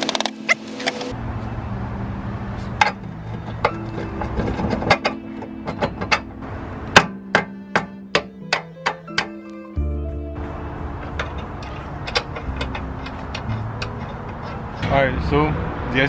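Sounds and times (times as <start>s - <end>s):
background music: 0.0s - 1.2s, 1.8s - 16.0s
sharp clicks and knocks: 11.0s - 14.9s.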